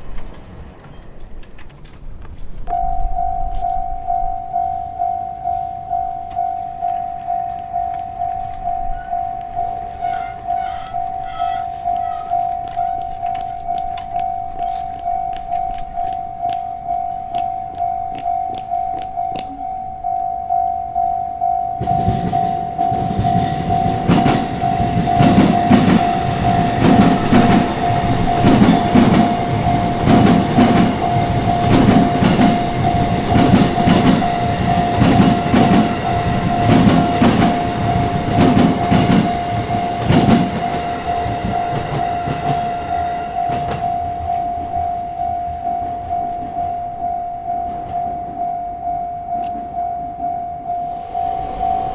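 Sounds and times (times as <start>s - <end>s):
train wheels clacking on rail joints: 0.0s - 2.8s, 21.8s - 44.6s
level crossing warning bell: 2.6s - 51.9s.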